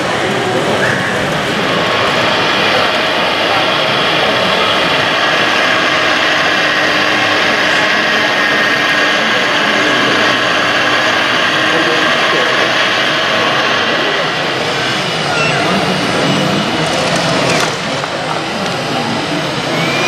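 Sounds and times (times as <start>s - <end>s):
din of busy hall: 0.0s - 20.0s
whir of electric motors and hydraulics: 0.0s - 20.0s.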